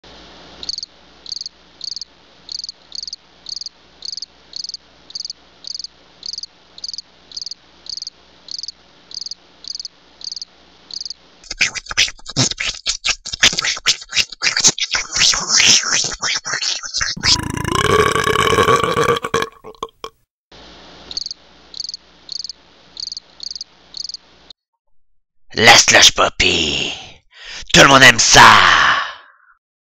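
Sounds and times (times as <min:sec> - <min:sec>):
cricket chirping: 0:00.6 - 0:11.2, 0:21.1 - 0:24.2.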